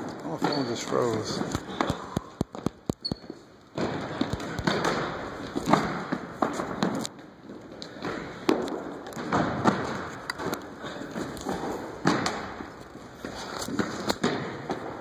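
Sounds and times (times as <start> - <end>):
ball bouncing on hardwood court: 0.0 - 12.8, 13.7 - 15.0
footfalls on hardwood court: 0.0 - 15.0.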